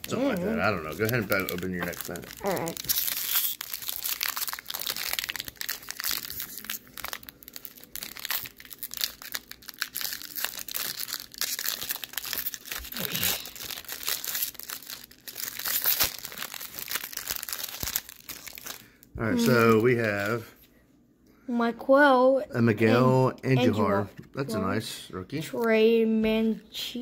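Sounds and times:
foil wrapper crinkling: 0.0s - 20.5s.

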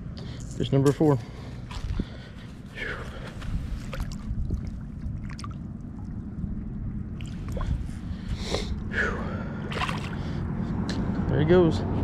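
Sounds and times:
water splashing and sloshing: 1.1s - 10.5s
wind rumble on microphone: 1.7s - 12.0s.

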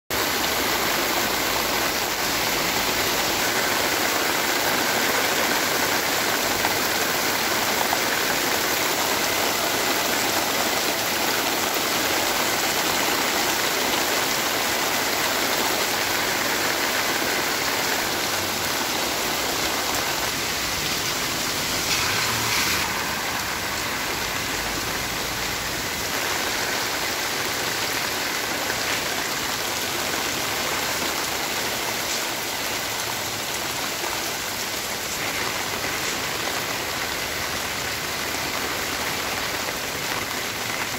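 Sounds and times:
heavy rain on flooded street: 0.1s - 40.9s.

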